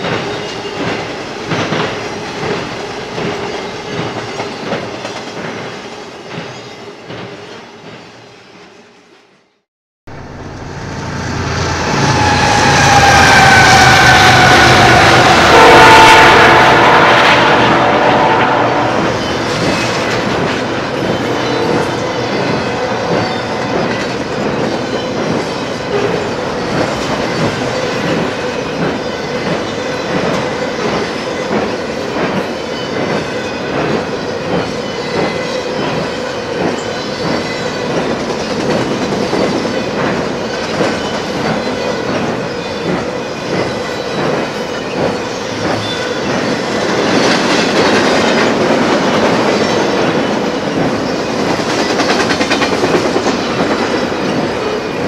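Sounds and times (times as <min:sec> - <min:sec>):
clickety-clack over rail joints: 0:00.0 - 0:08.1, 0:19.0 - 0:55.0
freight train wheels rumbling: 0:00.0 - 0:08.3, 0:10.1 - 0:55.0
locomotive horn blast: 0:10.1 - 0:23.6.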